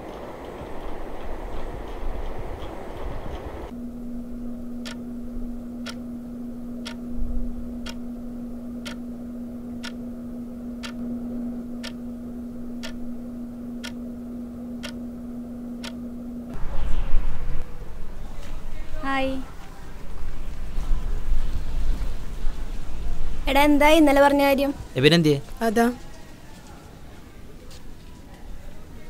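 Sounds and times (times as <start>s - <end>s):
low hum: 0.0s - 24.8s
clock ticking: 9.8s - 10.0s, 10.8s - 11.0s, 12.8s - 13.0s, 13.8s - 14.0s, 14.8s - 15.0s, 15.8s - 16.0s.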